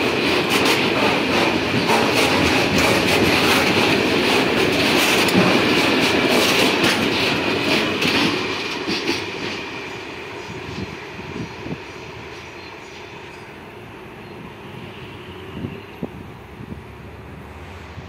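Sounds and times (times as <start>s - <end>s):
train wheels clacking over rail joints: 0.0s - 11.8s.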